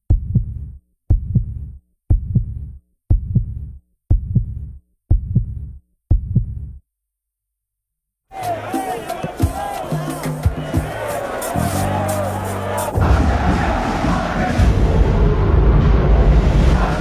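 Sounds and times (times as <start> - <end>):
heartbeat double thumps: 0.0 - 6.8.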